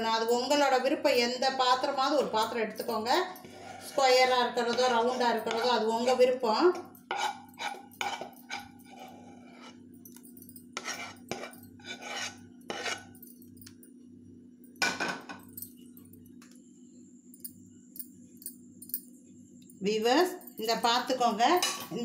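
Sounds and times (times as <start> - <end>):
steady low hum: 0.0 - 22.0
spoon scraping steel plate: 3.4 - 6.3, 7.0 - 9.8, 10.8 - 13.2.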